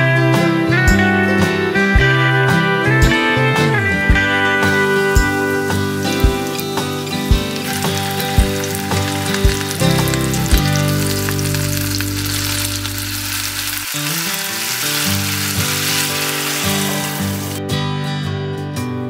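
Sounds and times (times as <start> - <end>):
crab sizzling in a pot: 4.6 - 17.6
wine poured into hot pot: 4.9 - 17.6.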